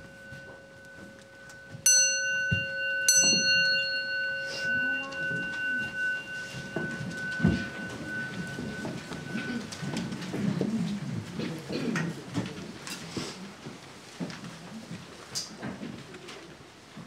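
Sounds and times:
bowl bell ringing: 0.0s - 11.0s
soft rustling of people: 0.0s - 17.0s.

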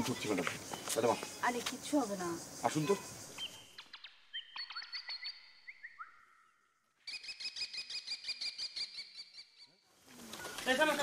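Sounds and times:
birds chirping and whistling: 2.7s - 9.8s.

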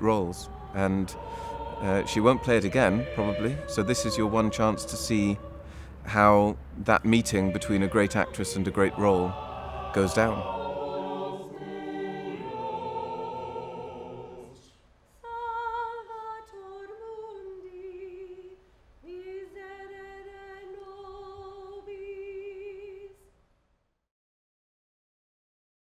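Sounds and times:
person singing with vibrato: 0.0s - 18.5s
voices singing a chord: 0.0s - 18.5s.

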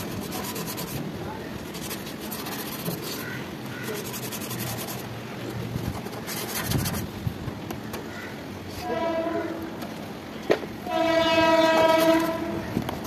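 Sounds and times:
hand scraping on metal pipework: 0.0s - 1.0s, 1.6s - 5.1s, 5.8s - 7.1s, 10.9s - 12.5s.

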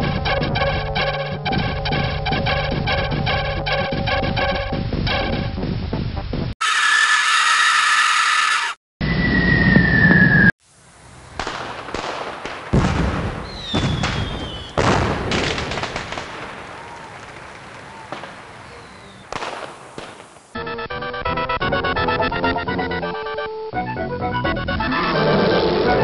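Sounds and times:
firework whistle: 6.6s - 10.6s, 13.4s - 14.9s
firework bangs and crackles: 11.2s - 20.6s.

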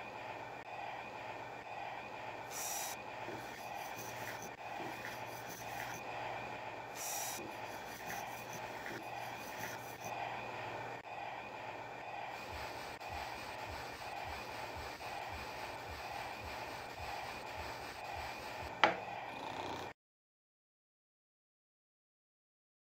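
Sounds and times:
low hum: 0.0s - 19.3s
hissing bursts: 2.4s - 6.0s, 6.9s - 10.1s, 12.1s - 18.8s
train running with regular beat: 12.1s - 18.8s.

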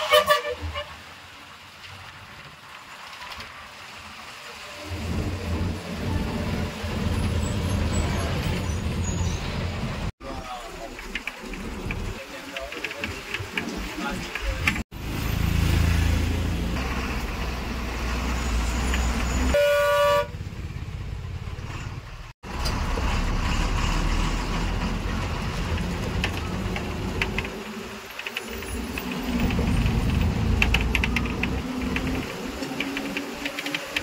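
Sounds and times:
vehicle horn toot: 0.0s - 0.9s, 19.4s - 20.4s
bus engine and road rumble: 0.0s - 34.0s.

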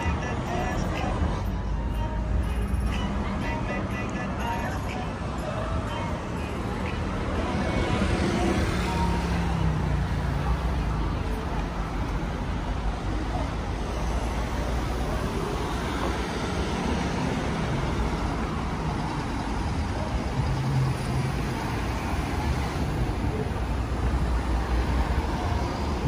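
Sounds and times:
traffic rumble: 0.0s - 26.0s.

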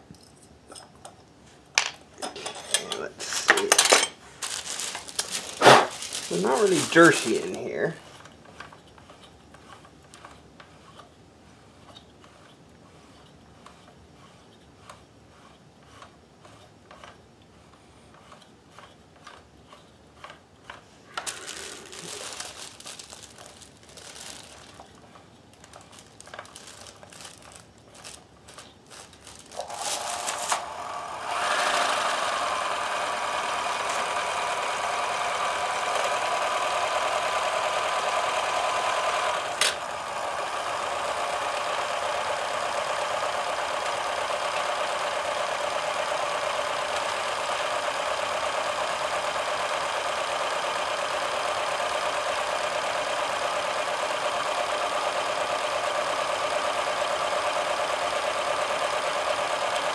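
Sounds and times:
sewing machine motor whining: 6.3s - 11.0s, 24.1s - 59.9s.

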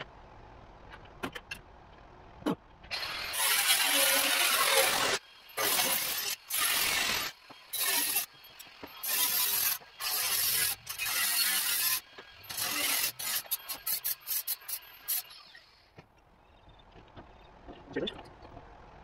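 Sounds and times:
arc welding bursts: 9.0s - 15.2s.

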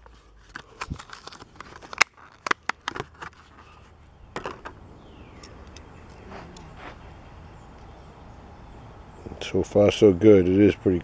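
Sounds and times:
plastic packaging crinkling: 0.0s - 3.9s.

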